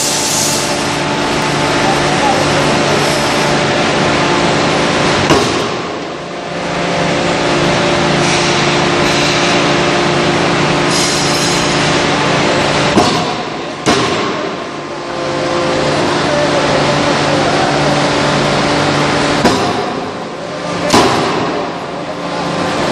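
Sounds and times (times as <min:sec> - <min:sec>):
loud machine drone: 0:00.0 - 0:22.9
forging hammer heavy blows: 0:12.9 - 0:14.6.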